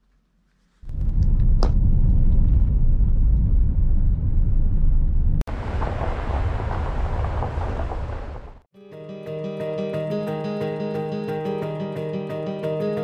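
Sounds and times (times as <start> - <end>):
loud low rumble: 0.9 - 8.6.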